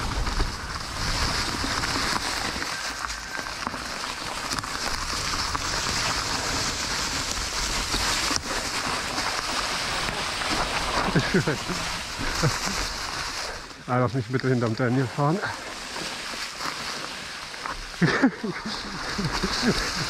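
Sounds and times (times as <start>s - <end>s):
wind rumble on microphone: 0.0s - 2.7s
bike tyres rolling through dry leaves: 0.0s - 20.0s.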